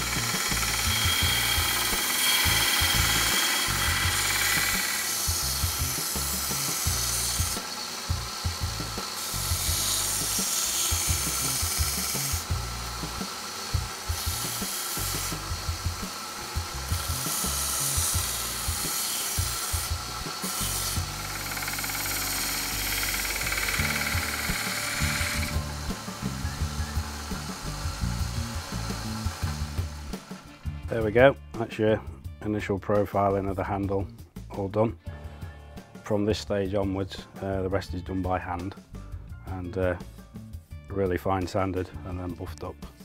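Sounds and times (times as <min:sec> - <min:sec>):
belt sander grinding: 0:00.0 - 0:30.6.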